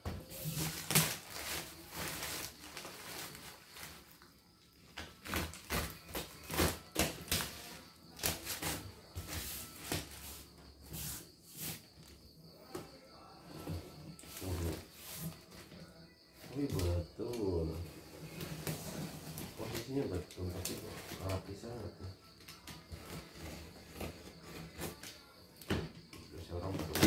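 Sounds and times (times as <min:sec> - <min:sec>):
plastic packing film crinkling: 0:00.3 - 0:04.3
utility knife cutting parcel: 0:05.0 - 0:10.1, 0:22.5 - 0:25.1.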